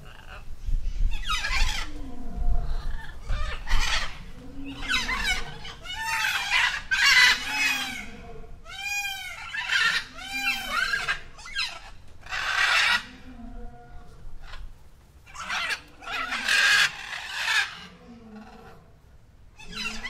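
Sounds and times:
peacock calling: 2.7s - 13.4s, 14.4s - 18.8s, 19.6s - 20.0s.

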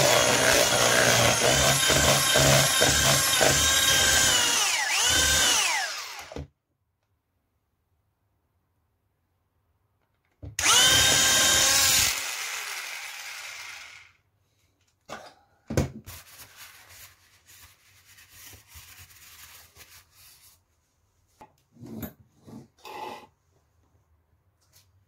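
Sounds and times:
hand blender motor whining: 0.0s - 6.5s, 10.6s - 14.1s.

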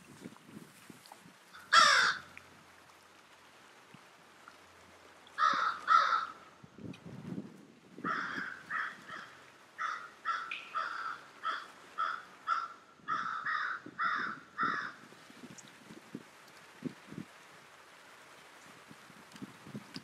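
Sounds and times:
crow cawing: 1.5s - 2.3s, 5.4s - 6.4s, 8.0s - 15.0s.

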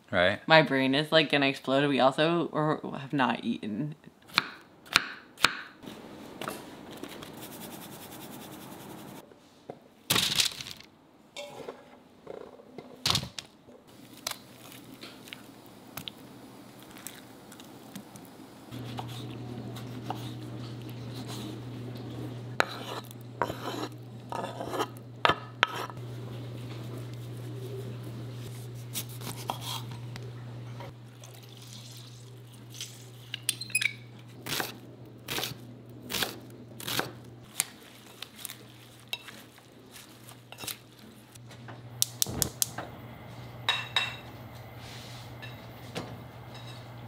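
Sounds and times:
steady low hum: 13.9s - 37.5s, 40.4s - 47.0s.

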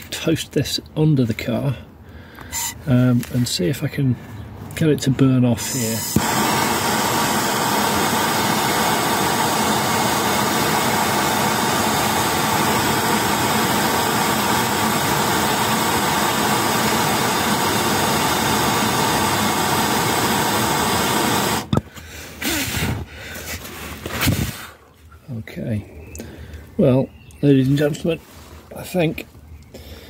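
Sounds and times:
gas blowtorch hissing: 5.6s - 21.8s.

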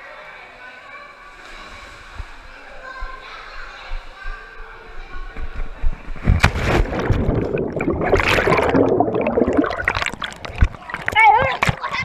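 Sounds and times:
sharp splash into pool: 6.2s - 11.8s
muffled underwater bubbling: 6.6s - 12.0s.

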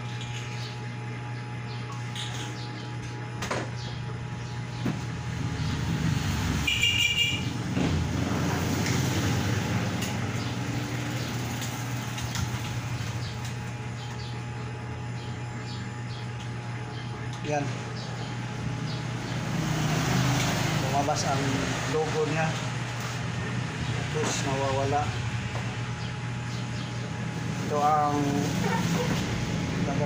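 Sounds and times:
steady low hum: 0.0s - 30.0s
road traffic noise: 4.4s - 14.3s, 16.9s - 30.0s
vehicle passing: 5.4s - 6.7s, 7.4s - 11.6s, 18.8s - 22.3s.

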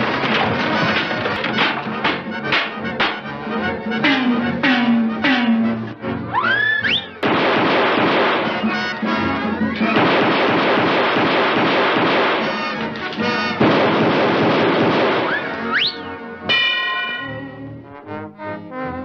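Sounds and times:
loud cartoon crashing: 0.0s - 3.3s, 4.0s - 5.8s, 7.2s - 11.3s, 11.9s - 17.5s.

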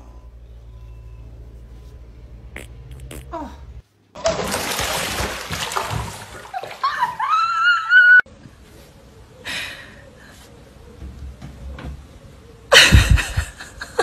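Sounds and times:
water splashing in bathtub: 4.2s - 7.6s
high cry: 6.8s - 8.2s.

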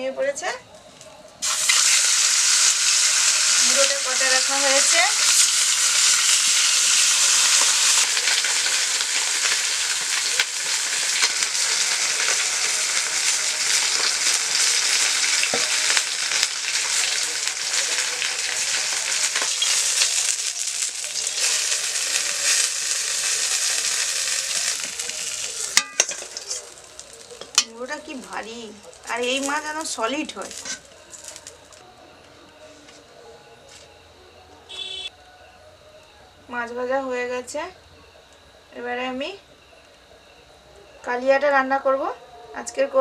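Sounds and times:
fish sizzling in hot oil: 1.4s - 31.8s
steel spatula stirring in wok: 18.7s - 27.7s.

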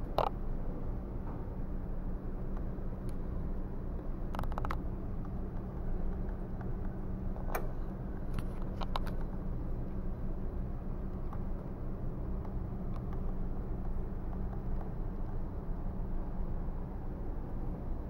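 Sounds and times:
steady low hum: 0.0s - 18.0s
small sharp clicks: 12.4s - 15.4s.

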